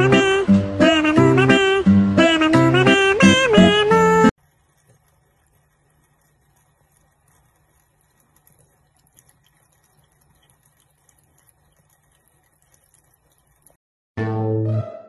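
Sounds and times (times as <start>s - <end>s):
cat lapping water: 4.4s - 13.8s
tap water trickling: 4.4s - 13.8s.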